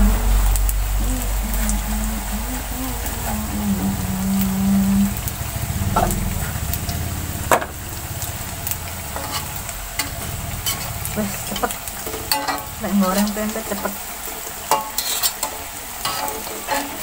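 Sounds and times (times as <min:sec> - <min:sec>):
hot oil sizzling: 0:00.0 - 0:17.0
metal spatula clicking on pan: 0:12.0 - 0:12.7.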